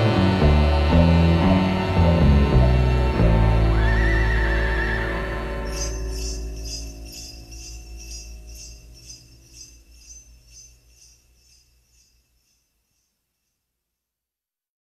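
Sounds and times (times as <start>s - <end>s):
low held music notes: 0.0s - 11.0s
sleigh bells jingling: 5.6s - 14.0s.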